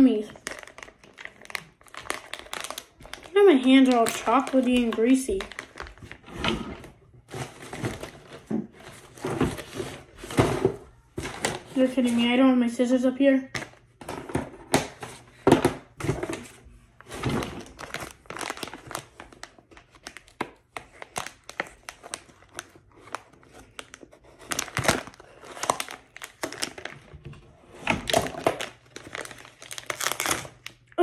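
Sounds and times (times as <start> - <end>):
plastic pouch crinkling and tearing: 0.2 - 6.2, 17.6 - 27.1, 28.1 - 31.0.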